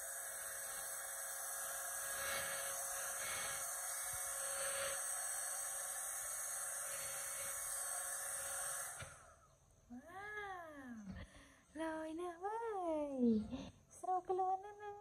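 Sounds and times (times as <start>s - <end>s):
hair dryer running: 0.0s - 9.4s.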